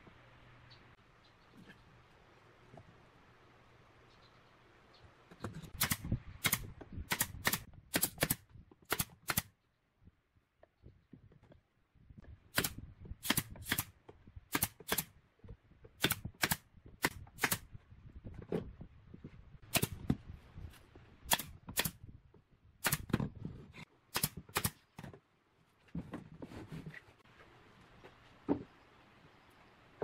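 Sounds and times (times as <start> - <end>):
nail gun firing into wood: 5.8 - 9.5, 14.5 - 15.1, 16.0 - 17.6, 19.7 - 20.0, 22.8 - 23.2.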